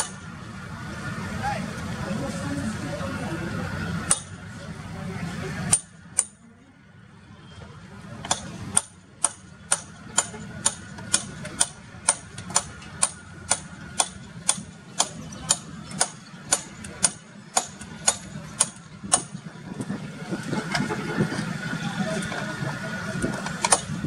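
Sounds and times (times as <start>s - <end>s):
steady sharp ticking: 8.3s - 19.3s.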